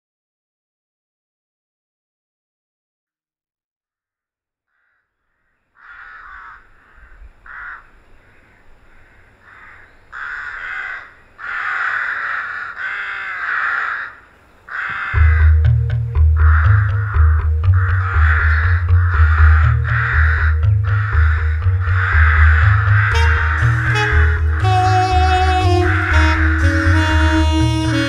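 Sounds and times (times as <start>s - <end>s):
crows cawing: 4.7s - 24.6s, 25.8s - 26.7s
deep bass music: 15.2s - 28.0s.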